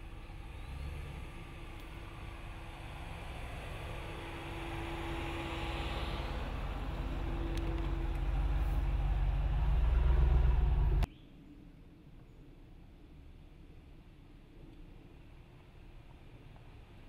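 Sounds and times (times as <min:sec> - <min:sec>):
pickup truck engine driving: 0:00.0 - 0:11.1.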